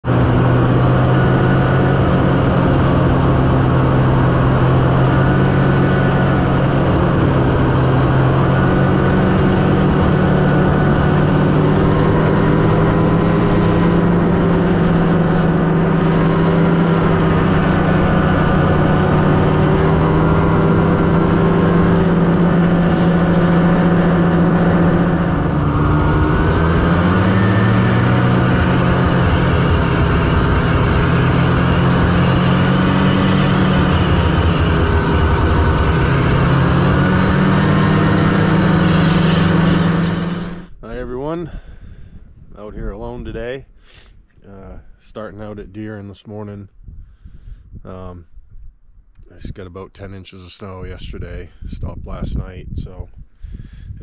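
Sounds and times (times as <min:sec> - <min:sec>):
snowmobile engine running: 0:00.0 - 0:41.6.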